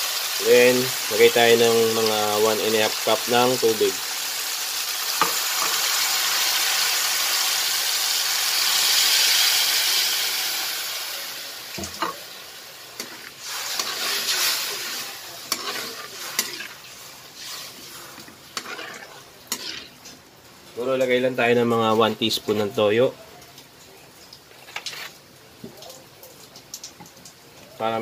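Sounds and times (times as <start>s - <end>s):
water sizzling in hot wok: 0.0s - 22.6s
metal spoon scraping wok: 13.0s - 20.2s.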